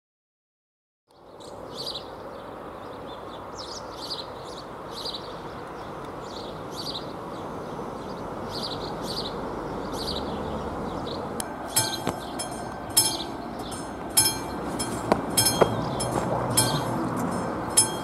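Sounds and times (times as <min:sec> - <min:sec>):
birds chirping: 0:01.1 - 0:18.0
outdoor rumble: 0:07.6 - 0:18.0.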